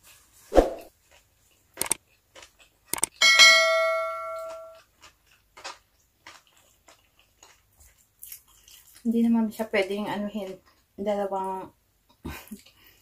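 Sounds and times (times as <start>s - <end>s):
small eating clicks: 1.0s - 3.2s, 4.4s - 13.0s
bright bell ding: 3.2s - 4.8s.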